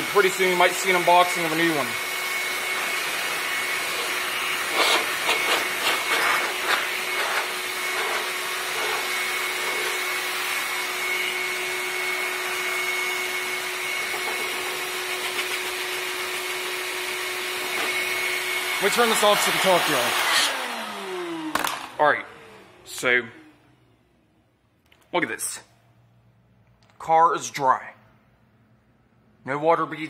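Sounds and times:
shop vac blowing air: 0.0s - 23.7s.

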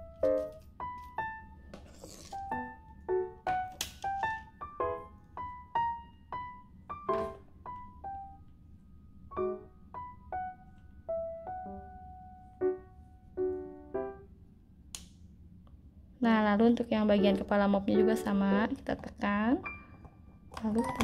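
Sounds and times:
light piano melody: 0.0s - 14.7s, 16.8s - 21.0s
mop pole scraping: 1.8s - 2.6s.

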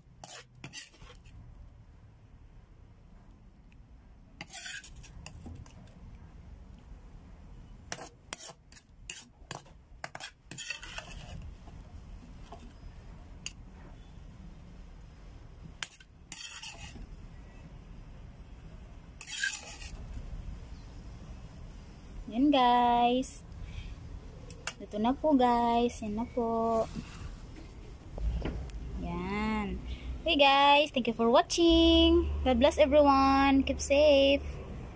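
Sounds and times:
metal spoon scraping a plate: 0.2s - 1.3s, 4.4s - 5.7s, 7.9s - 11.5s, 15.8s - 17.0s, 19.2s - 20.0s.

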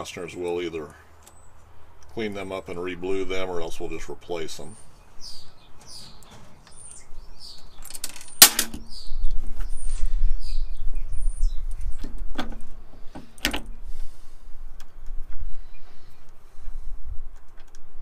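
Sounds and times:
bird chirps: 4.6s - 12.2s, 15.5s - 16.2s.

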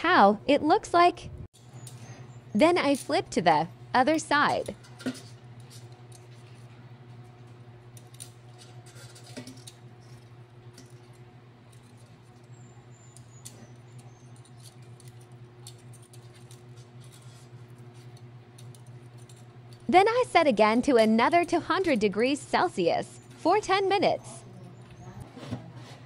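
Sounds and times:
metal tongs clicking on basket: 2.8s - 3.5s, 13.2s - 17.2s, 18.0s - 19.9s, 20.7s - 22.2s.

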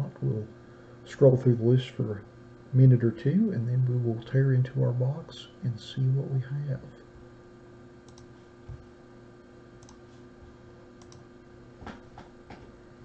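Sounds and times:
steady electrical hum: 0.0s - 13.0s
computer mouse clicks: 8.1s - 8.3s, 9.8s - 10.1s, 11.0s - 11.2s.

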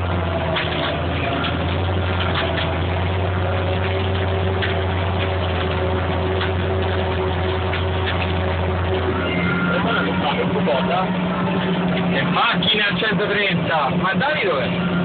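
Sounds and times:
faint clicks and rattles: 0.0s - 9.0s
tractor diesel engine under load: 0.0s - 15.0s.

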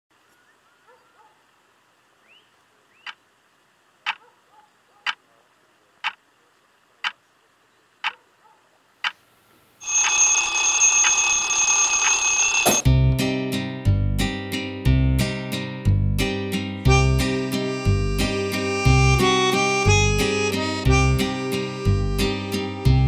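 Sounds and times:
alarm clock bells ringing: 9.8s - 12.9s.

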